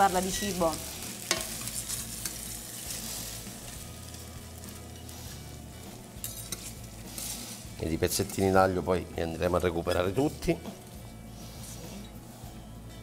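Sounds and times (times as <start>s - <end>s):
pasta sizzling in hot oil: 0.0s - 11.6s
tongs clicking against pan: 1.2s - 2.5s, 6.2s - 7.3s.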